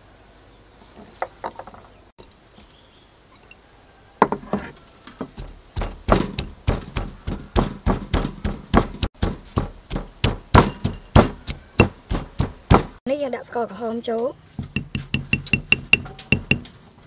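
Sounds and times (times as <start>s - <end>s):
stone pestle pounding in mortar: 5.3s - 13.0s, 14.6s - 16.7s.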